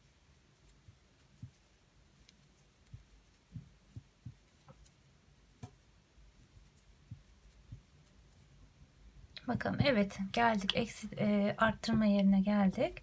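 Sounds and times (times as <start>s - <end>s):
soft taps of crochet hook: 1.3s - 5.9s.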